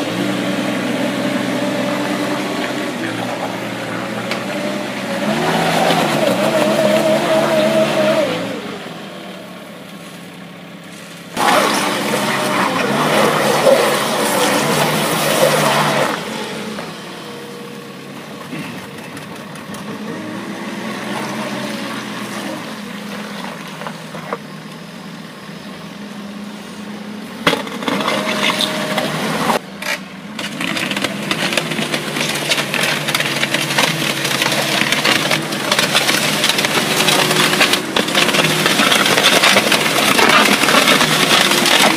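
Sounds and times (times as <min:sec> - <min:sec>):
diesel engine running: 0:00.0 - 0:41.9
sand and soil rattling on bucket: 0:30.4 - 0:41.9.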